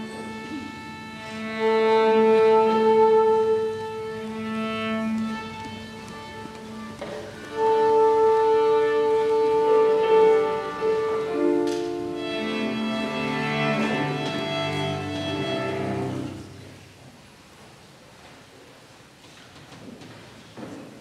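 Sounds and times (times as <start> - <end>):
double bass: 0.0 - 16.6
piano: 0.0 - 16.8
cello: 0.0 - 17.1.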